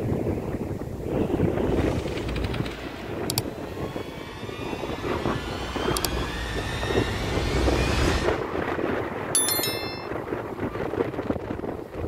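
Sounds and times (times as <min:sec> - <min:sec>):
wind: 0:00.0 - 0:12.0
motor humming with rising whine: 0:03.5 - 0:08.4.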